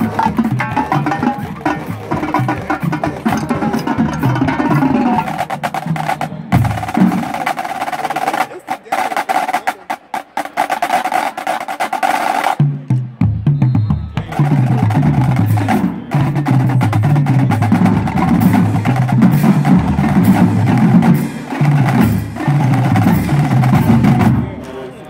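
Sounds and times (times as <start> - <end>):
bass drums: 0.0 - 8.1, 12.6 - 24.6
rapid snare drum strokes: 0.0 - 24.6.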